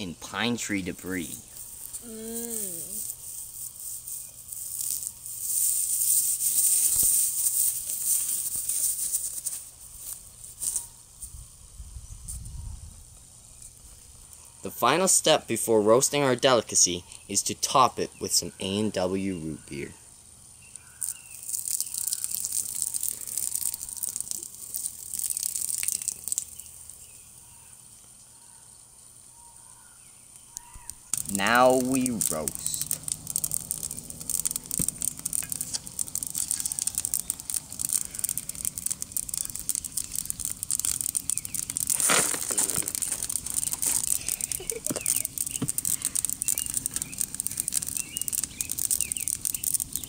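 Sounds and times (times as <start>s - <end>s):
pine needles rustling and crackling: 0.6s - 11.4s, 20.7s - 28.3s, 29.8s - 50.0s
liquid pouring and splashing: 21.0s - 27.0s, 31.2s - 50.0s.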